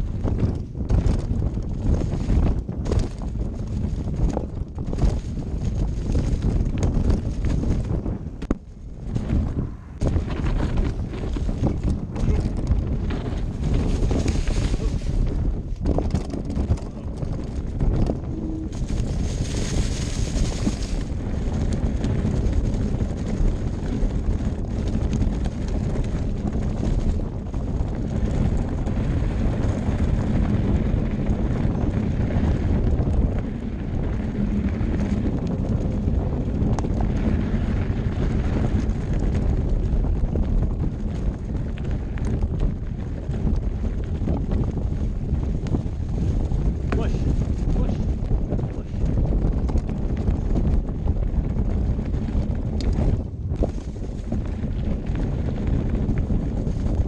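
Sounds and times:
bike knocks and rattles: 0.0s - 57.0s
bike rolling on dirt trail: 0.0s - 57.0s
wind on microphone: 0.0s - 57.0s.

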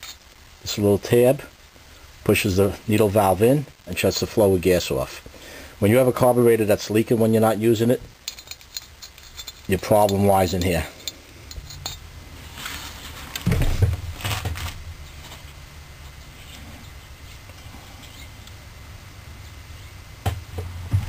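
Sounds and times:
low steady hum: 0.0s - 21.0s
metal parts clinking on workbench: 8.2s - 12.0s.

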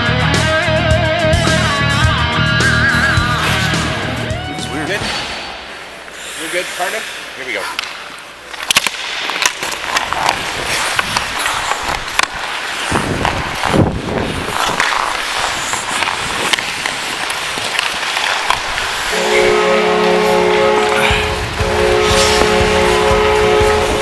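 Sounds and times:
skate blades scraping ice: 2.7s - 4.2s, 4.8s - 24.0s
hockey sticks and puck clacking: 2.7s - 24.0s
goal horn: 19.1s - 24.0s.

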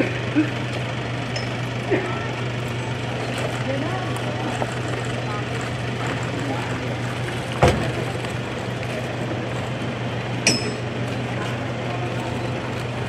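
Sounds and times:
outdoor noise: 0.0s - 13.0s
vehicle engine idling: 0.0s - 13.0s
sharp metallic clink: 1.3s - 1.6s, 10.4s - 10.9s.

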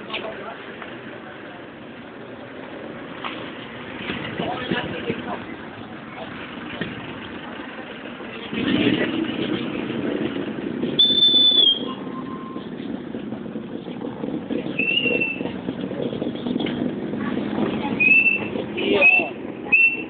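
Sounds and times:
street noise: 0.0s - 20.0s
voices: 0.0s - 20.0s
whistle blasts: 11.0s - 12.6s, 14.8s - 15.4s, 18.0s - 20.0s.

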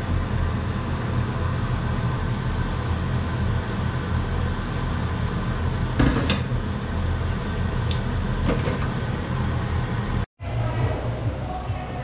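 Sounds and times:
sauce simmering: 0.0s - 8.4s.

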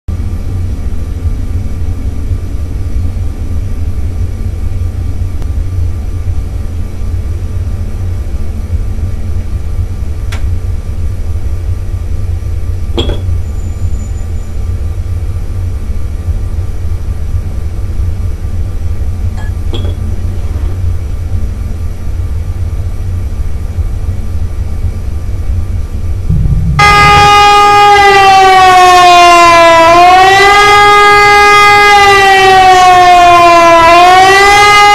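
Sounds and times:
low rumbling drone: 0.1s - 31.0s
siren-like wail: 26.3s - 34.9s.

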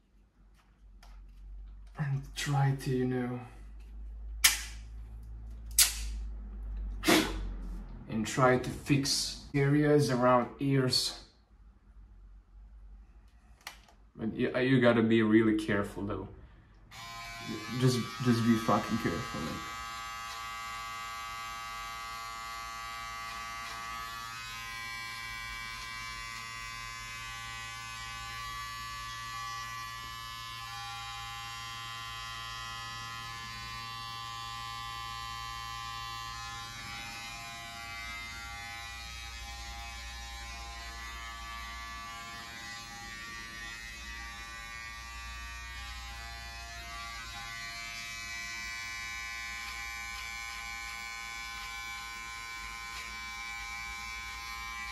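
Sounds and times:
electric hair clippers running: 16.9s - 54.9s.

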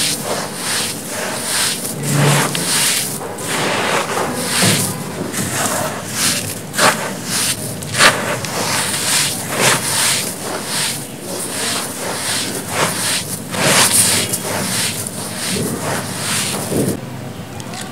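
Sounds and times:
hands crunching gritty material: 0.0s - 17.0s.

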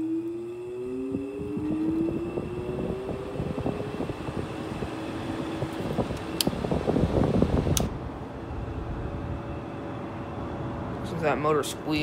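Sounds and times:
steady squealing tone: 0.0s - 6.4s
air conditioner fan hum: 0.0s - 12.0s.

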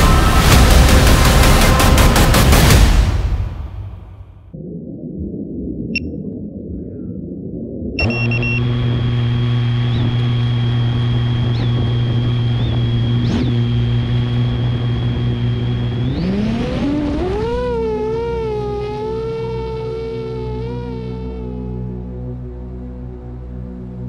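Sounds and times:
drone motors whining: 8.0s - 20.6s.

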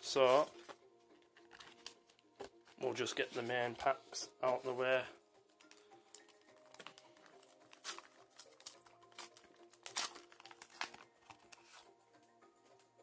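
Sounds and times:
faint background music: 0.0s - 13.0s
card pack wrapper tearing and crinkling: 1.4s - 2.2s, 5.6s - 11.8s.

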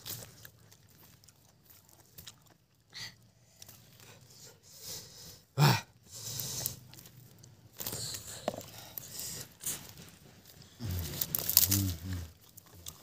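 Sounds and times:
chewing and mouth sounds: 0.0s - 4.4s, 6.0s - 13.0s
breathing: 2.9s - 6.9s, 7.8s - 11.3s.

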